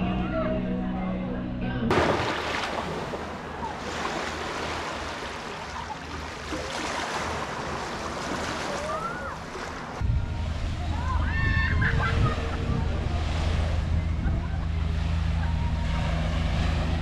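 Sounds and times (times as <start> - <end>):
sea waves rushing: 1.9 - 17.0
wind on microphone: 9.8 - 17.0.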